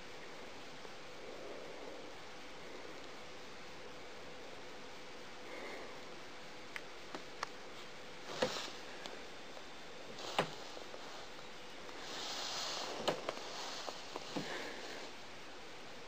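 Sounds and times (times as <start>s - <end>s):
snake hissing softly: 7.7s - 15.4s.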